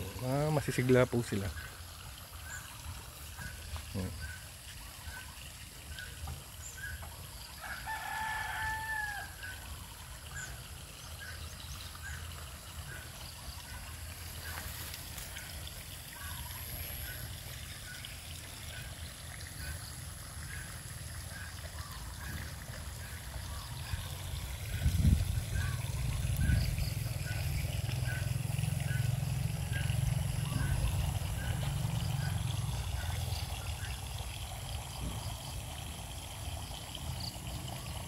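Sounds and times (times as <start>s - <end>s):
rooster crowing: 7.6s - 9.6s.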